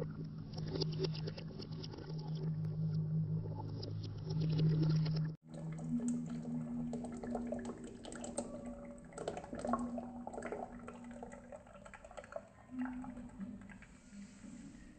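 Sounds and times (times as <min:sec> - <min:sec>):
liquid dripping and trickling: 0:05.4 - 0:14.7
bubbles popping: 0:05.5 - 0:14.0.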